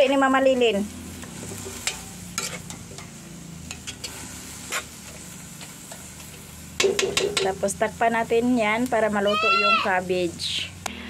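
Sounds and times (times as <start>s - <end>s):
food sizzling in a wok: 0.0s - 11.0s
metal spatula scraping pan: 1.4s - 4.9s.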